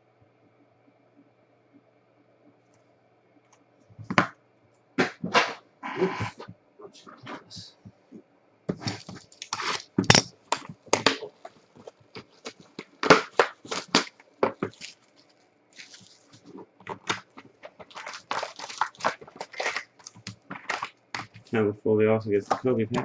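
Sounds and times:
foil packs crinkling: 8.7 - 21.6.

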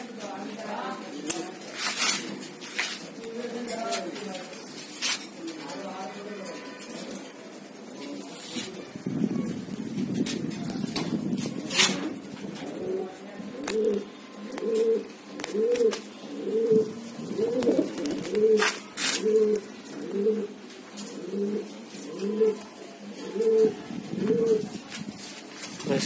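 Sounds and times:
pigeons cooing: 10.9 - 24.9.

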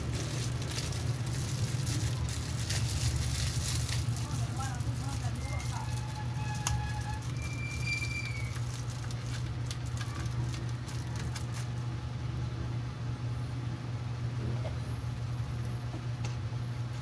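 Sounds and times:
steady low hum: 0.0 - 7.8, 8.6 - 17.0
bubble wrap crinkling: 0.0 - 11.8.

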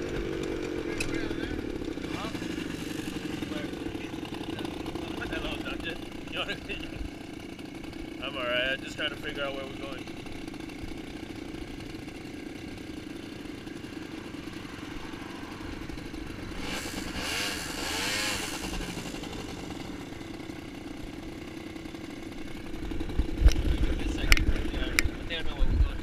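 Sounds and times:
atv passing by: 0.0 - 10.8, 13.1 - 20.7
atv engine idling: 0.0 - 26.0.

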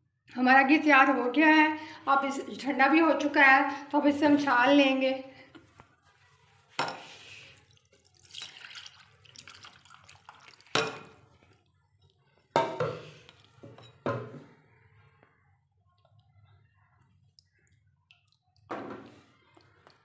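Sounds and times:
liquid pouring and splashing: 6.4 - 13.8
metal pot clinking: 8.2 - 11.2.

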